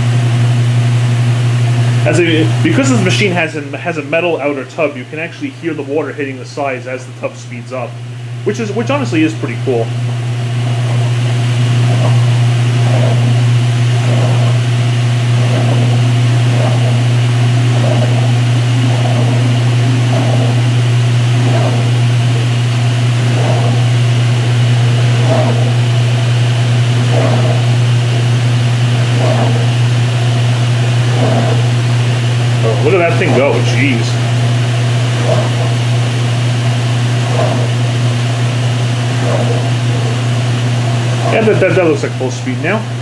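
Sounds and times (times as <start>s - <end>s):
washing machine motor hum: 0.0s - 43.0s
water spraying against metal tub: 7.3s - 43.0s.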